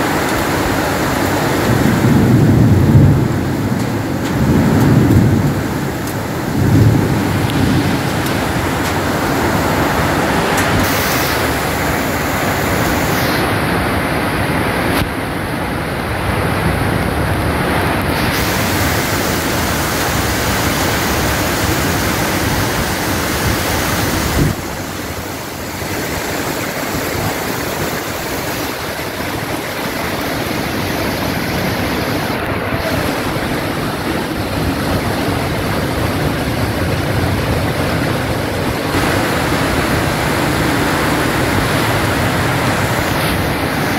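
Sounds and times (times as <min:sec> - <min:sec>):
heavy rain pouring: 0:00.0 - 0:43.9
low thunder rumble: 0:01.3 - 0:11.9.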